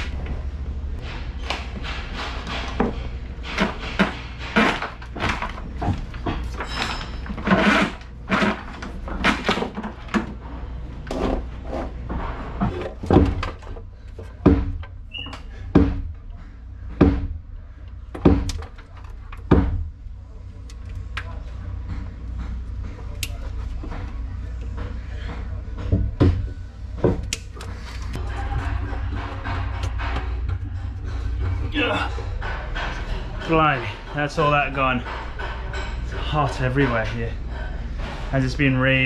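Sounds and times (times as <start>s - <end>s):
steady low hum: 0.0s - 39.0s
wires clattering in wooden pedestal: 1.5s - 10.4s.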